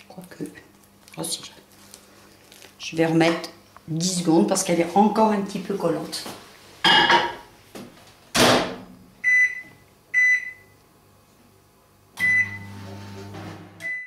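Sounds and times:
microwave humming: 0:06.8 - 0:14.0
keypad beeps: 0:09.3 - 0:10.6.

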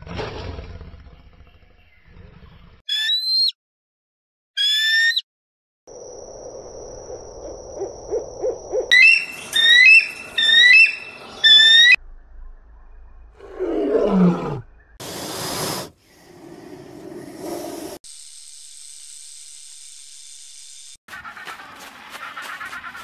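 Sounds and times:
high rising owl calls: 0:07.0 - 0:12.0
owl hooting: 0:07.4 - 0:12.0
snake hissing: 0:15.0 - 0:18.0.

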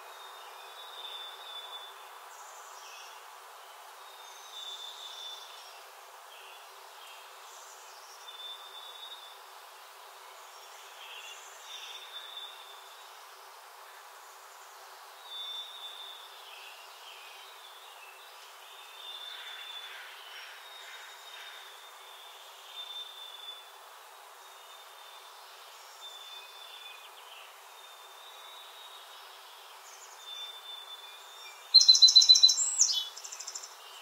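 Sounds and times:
steady background hiss: 0:00.0 - 0:34.0
songbirds singing: 0:14.0 - 0:34.0.

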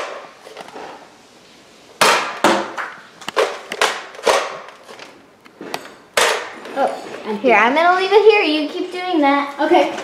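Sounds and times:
foam darts striking wood: 0:02.0 - 0:04.6, 0:06.2 - 0:06.5.

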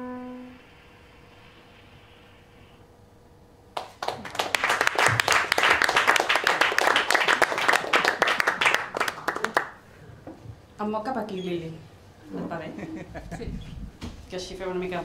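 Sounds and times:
audience applauding: 0:03.8 - 0:09.8.

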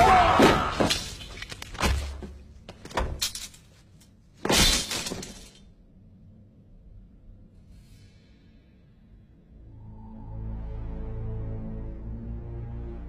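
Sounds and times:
sword hits and clatter: 0:04.4 - 0:05.6.

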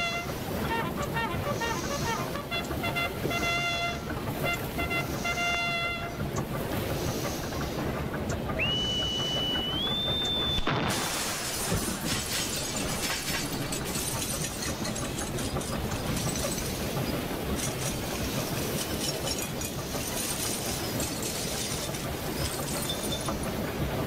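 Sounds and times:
whistle climbing in pitch: 0:08.6 - 0:10.7
cannon blast: 0:10.6 - 0:12.4
rumbling crashing and clattering: 0:10.6 - 0:23.6.

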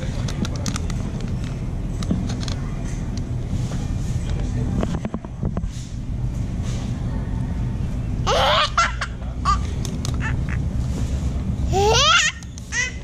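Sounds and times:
steady low rumble: 0:00.0 - 0:12.0
child squealing with laughter: 0:11.8 - 0:13.0.

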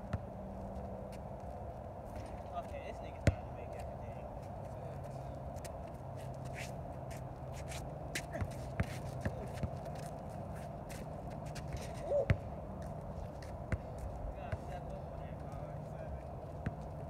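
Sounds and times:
basketball bouncing on asphalt: 0:00.0 - 0:00.4, 0:03.2 - 0:04.2, 0:08.1 - 0:14.9, 0:16.4 - 0:17.0
sneaker footsteps scuffing: 0:06.2 - 0:14.1.

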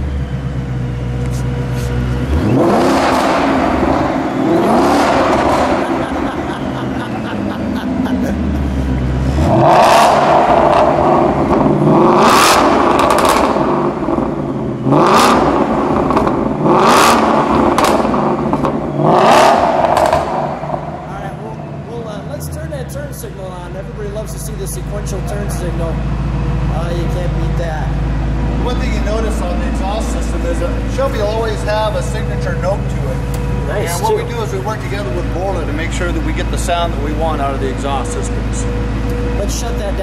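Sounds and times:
car engine idling and revving: 0:00.0 - 0:40.0.

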